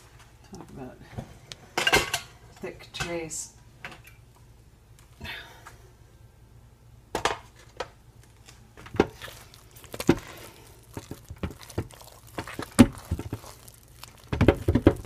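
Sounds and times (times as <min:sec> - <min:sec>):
wet squelches of paste: 0:09.0 - 0:15.0.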